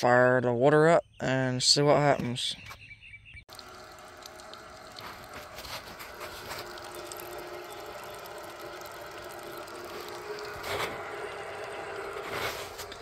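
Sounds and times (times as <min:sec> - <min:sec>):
irrigator turbine whirring: 0:03.5 - 0:13.0.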